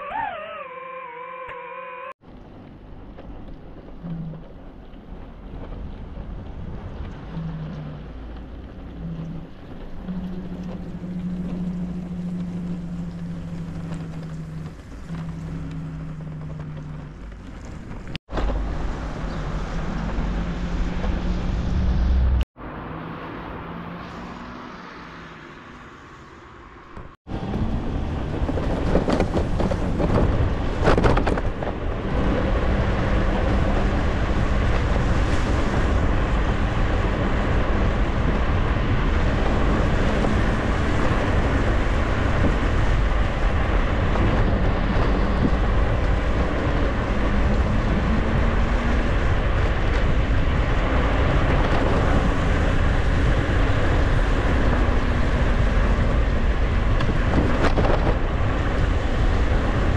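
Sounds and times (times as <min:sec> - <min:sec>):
wind buffeting microphone: 0:27.0 - 0:59.9.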